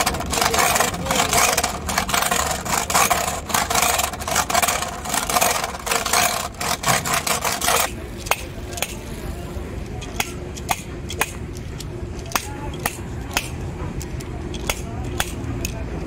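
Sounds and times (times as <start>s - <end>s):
bearing rollers rattling and scraping: 0.0s - 9.0s.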